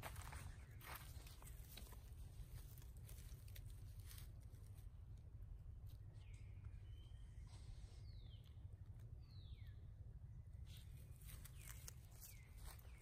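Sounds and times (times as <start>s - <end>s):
rustling of grass and leaves: 0.0s - 6.6s, 10.5s - 13.0s
steady low rumble: 0.0s - 13.0s
faint high chirp: 6.1s - 9.9s.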